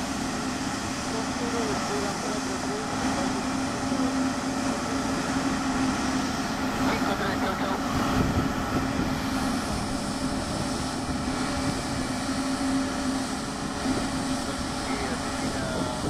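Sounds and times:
jet engines rumbling: 0.0 - 16.0.

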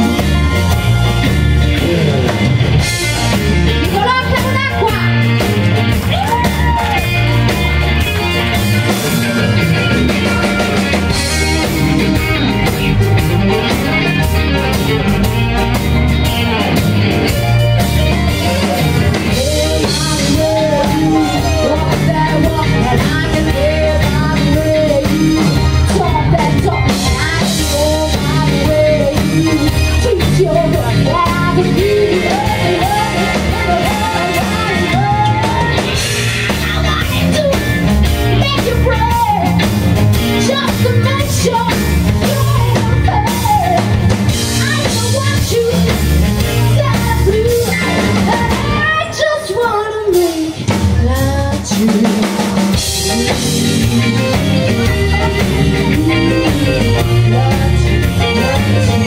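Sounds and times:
rhythm and blues band playing: 0.0 - 59.0
woman singing: 3.8 - 5.4, 18.0 - 59.0.

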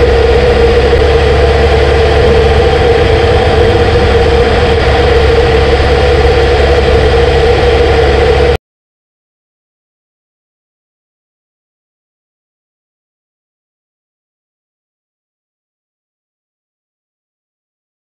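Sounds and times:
motorcycle engine cruising: 0.0 - 8.6.

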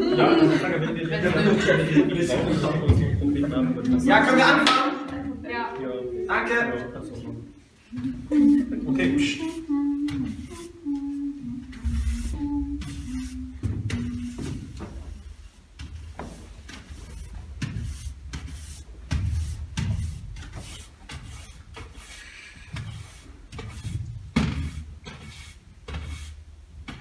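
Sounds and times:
person humming: 7.9 - 14.7
push broom scraping wooden floor: 8.8 - 27.0
footsteps on wooden boards: 10.1 - 24.8.

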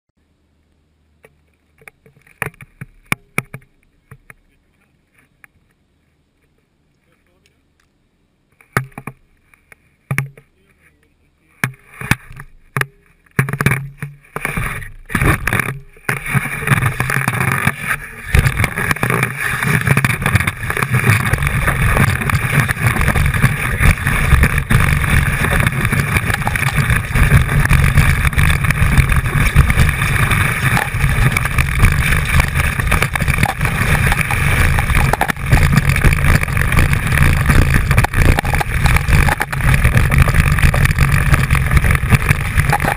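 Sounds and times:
skis scraping and knocking: 1.2 - 7.4, 8.6 - 42.9
skis rushing over snow: 13.4 - 42.9.

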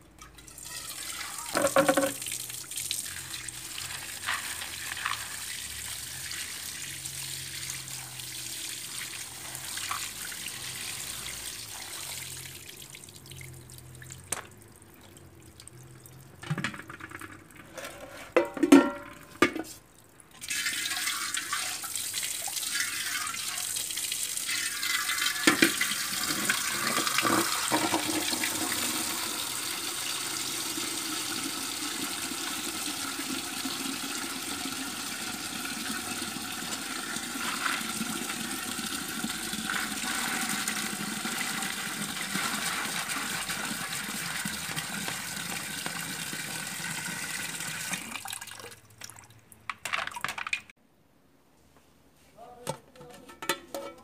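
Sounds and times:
tap water running into a pot: 0.3 - 17.4, 20.3 - 49.3
light knocks of pot and colander: 1.6 - 2.2, 18.3 - 19.7, 52.7 - 54.0.

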